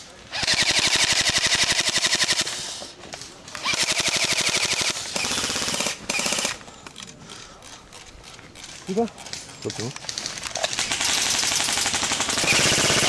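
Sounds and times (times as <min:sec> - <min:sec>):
airsoft rifle full-auto bursts: 0:00.3 - 0:02.6, 0:03.6 - 0:06.6, 0:10.7 - 0:13.0.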